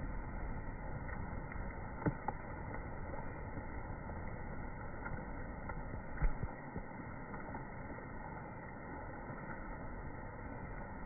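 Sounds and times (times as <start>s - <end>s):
low rumble and hiss: 0.0s - 11.0s.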